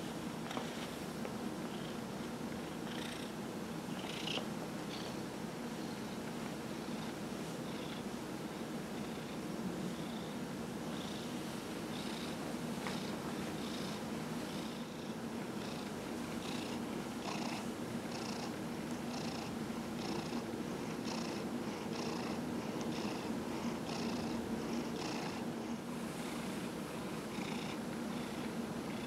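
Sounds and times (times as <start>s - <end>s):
cat purring: 2.7s - 5.2s, 8.9s - 25.5s, 26.2s - 29.0s.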